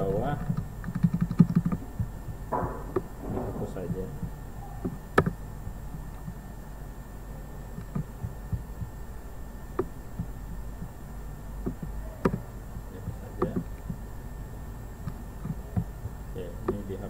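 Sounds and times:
low hum: 0:00.0 - 0:17.0
computer mouse clicks: 0:00.4 - 0:02.1, 0:04.8 - 0:05.4, 0:07.8 - 0:08.9, 0:11.6 - 0:12.4, 0:13.4 - 0:14.0, 0:15.0 - 0:16.8
keyboard clicks: 0:00.4 - 0:02.1, 0:04.8 - 0:05.4, 0:07.8 - 0:08.7, 0:11.6 - 0:12.4, 0:13.1 - 0:14.0.

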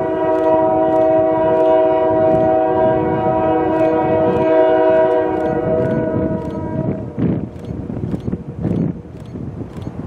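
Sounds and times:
locomotive air horn: 0:00.0 - 0:07.2
train wheels clicking on rails: 0:00.0 - 0:10.0.

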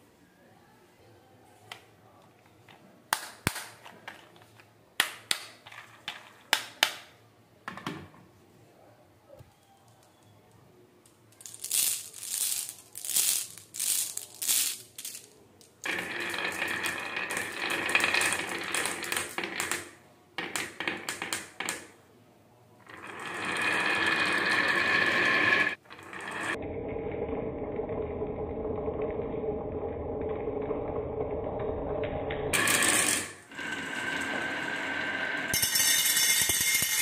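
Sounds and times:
glass marbles clicking: 0:11.3 - 0:19.9, 0:35.5 - 0:37.0
marbles rolling on wooden track: 0:11.3 - 0:21.9, 0:22.8 - 0:26.6, 0:32.5 - 0:37.0.

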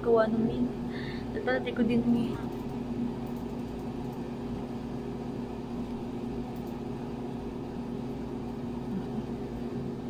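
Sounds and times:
air conditioner humming: 0:00.0 - 0:10.0.

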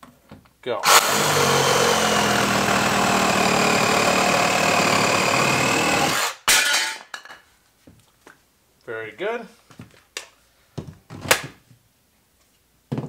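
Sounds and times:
reciprocating saw cutting wood: 0:00.8 - 0:06.4.

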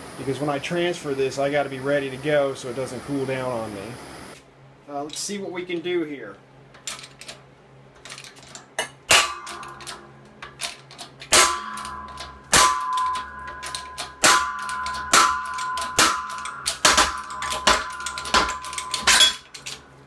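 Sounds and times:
metal ringing: 0:08.4 - 0:20.0
sharp metallic bangs: 0:08.8 - 0:20.0.

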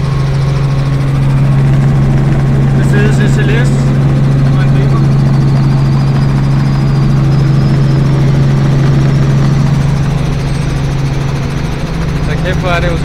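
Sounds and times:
helicopter cabin drone: 0:00.0 - 0:13.0.

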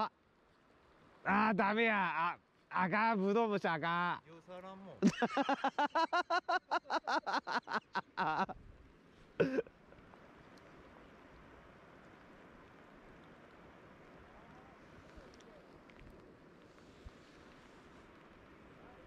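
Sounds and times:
man laughing: 0:05.0 - 0:08.6, 0:09.4 - 0:09.7.

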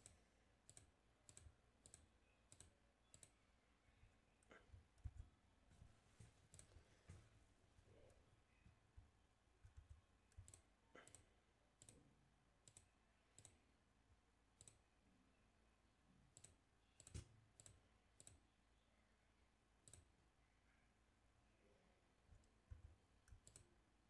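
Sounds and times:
computer mouse clicks: 0:00.0 - 0:03.4, 0:06.5 - 0:06.8, 0:09.6 - 0:12.0, 0:12.6 - 0:13.6, 0:14.6 - 0:14.9, 0:16.3 - 0:18.4, 0:19.8 - 0:20.1, 0:22.4 - 0:23.7.

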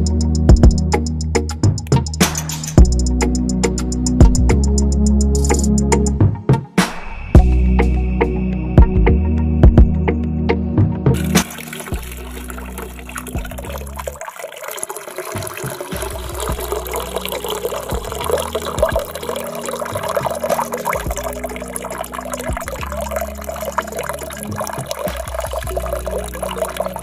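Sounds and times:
small splashes and drips: 0:11.2 - 0:27.0
water running: 0:11.2 - 0:27.0.

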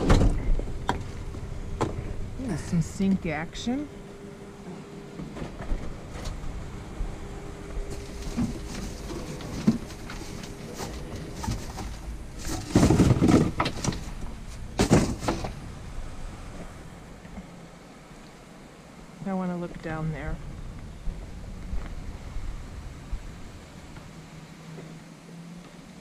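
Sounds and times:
cardboard and plastic bags rustling: 0:07.3 - 0:15.7.

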